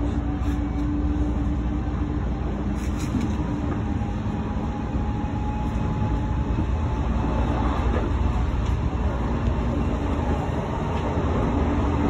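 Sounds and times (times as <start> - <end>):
electric train rumbling: 0.0 - 12.0.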